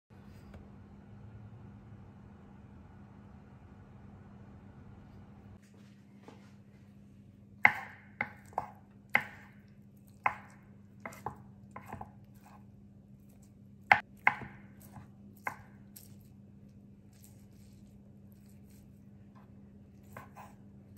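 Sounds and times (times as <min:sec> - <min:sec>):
knife chopping on cutting board: 0:07.6 - 0:12.6, 0:13.4 - 0:16.1, 0:20.0 - 0:20.6.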